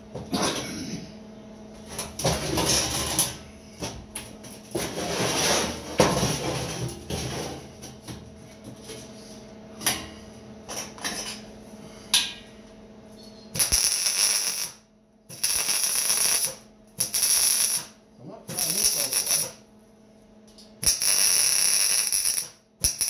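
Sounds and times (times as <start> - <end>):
arc welding crackle: 13.5 - 19.6, 20.8 - 23.0.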